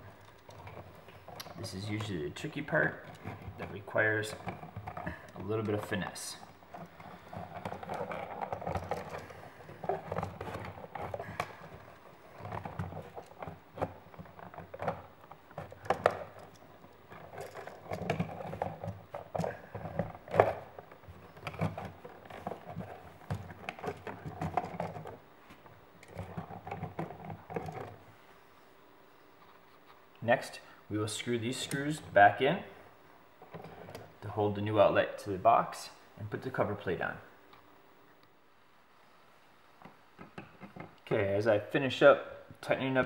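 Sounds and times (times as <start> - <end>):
sharp clicks and knocks: 39.8 - 41.1.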